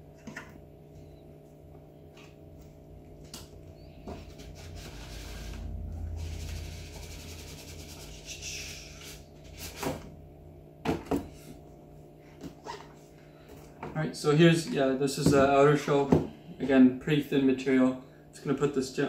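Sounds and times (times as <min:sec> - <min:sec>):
cardboard rubbing on cardboard: 0:04.0 - 0:10.0.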